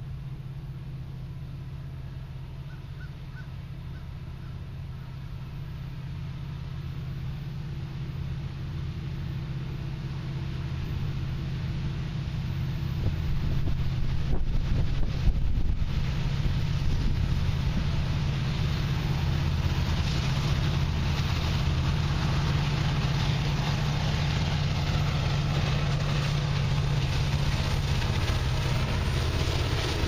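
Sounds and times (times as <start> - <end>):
diesel locomotive engine drone: 0.0 - 30.0
wind buffeting microphone: 12.9 - 30.0.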